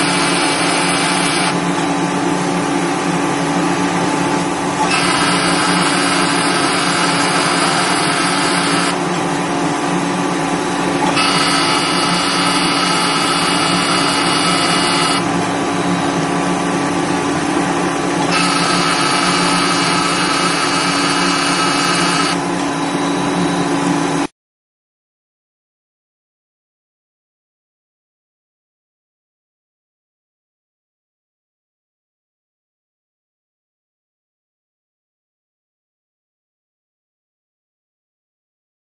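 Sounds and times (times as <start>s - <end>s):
higher machine whine: 0.0s - 24.3s
machine electrical hum and whine: 0.0s - 24.3s.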